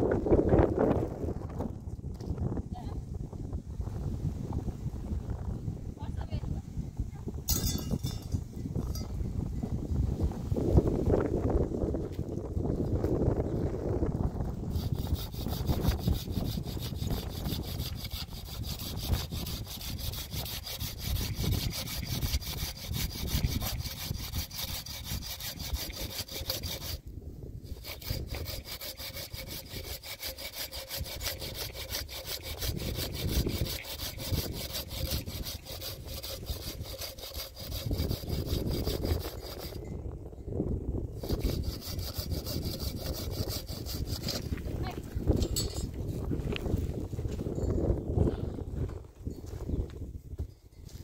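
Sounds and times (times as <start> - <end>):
hand saw cutting branch: 14.4 - 39.8, 41.2 - 44.6.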